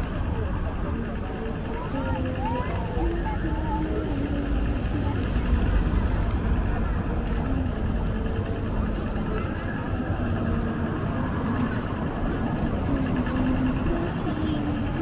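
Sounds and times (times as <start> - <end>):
faint voices of passers-by: 0.0 - 15.0
low rumble of motor traffic: 0.0 - 15.0.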